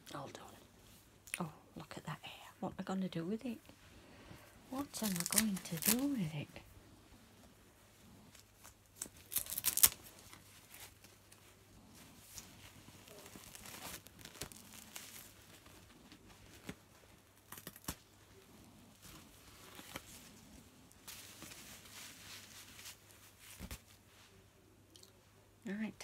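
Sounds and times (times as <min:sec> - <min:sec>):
nappy tearing and crinkling: 0:04.8 - 0:06.4, 0:08.2 - 0:24.0.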